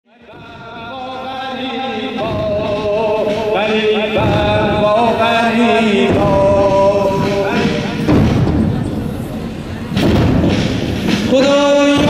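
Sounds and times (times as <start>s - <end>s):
man chanting lament: 0.1s - 8.1s, 11.2s - 12.0s.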